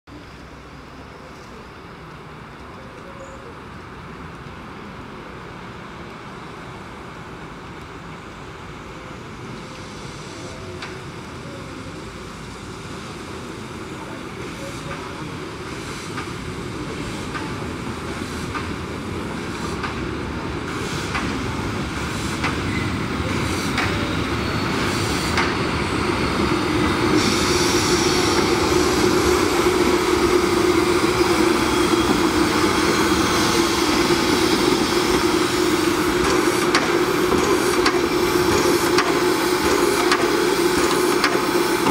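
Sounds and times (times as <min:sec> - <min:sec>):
steam locomotive passing: 0:00.1 - 0:41.9
high hiss: 0:11.9 - 0:41.9.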